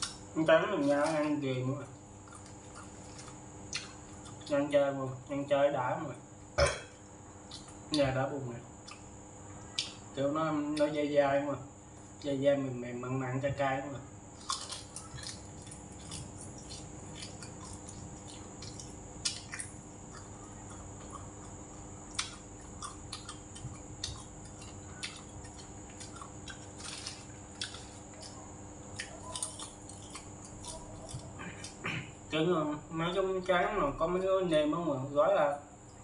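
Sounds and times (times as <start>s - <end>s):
faint steady hum: 0.0s - 36.0s
person chewing: 2.2s - 4.6s, 7.4s - 7.9s, 8.8s - 10.0s, 14.3s - 32.2s
wet mouth clicks and smacks: 3.7s - 4.4s, 9.7s - 10.0s, 16.1s - 20.3s, 21.0s - 26.6s.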